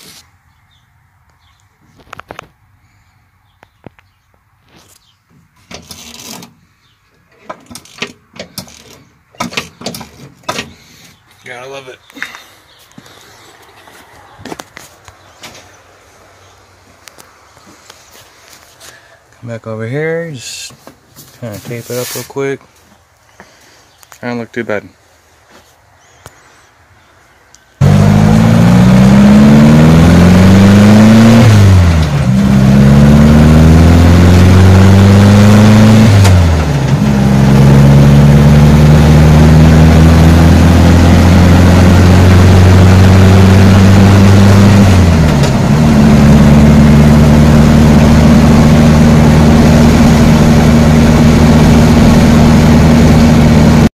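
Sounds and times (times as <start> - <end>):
car engine accelerating: 27.8 - 53.9.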